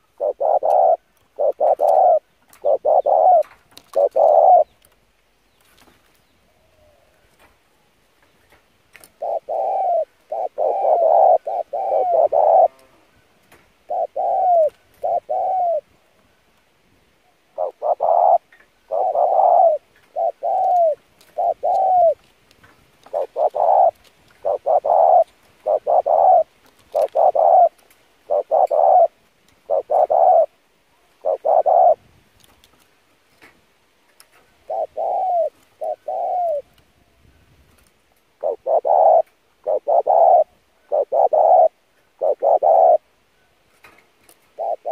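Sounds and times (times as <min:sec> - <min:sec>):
dove cooing: 0:00.0 - 0:04.7, 0:09.1 - 0:13.1, 0:13.8 - 0:15.9, 0:17.5 - 0:22.3, 0:23.0 - 0:32.0, 0:34.6 - 0:36.8, 0:38.4 - 0:43.1, 0:44.5 - 0:44.9.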